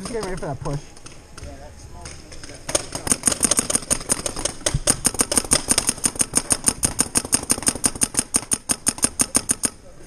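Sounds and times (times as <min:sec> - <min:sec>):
paintball marker firing rapidly: 0:02.0 - 0:09.8.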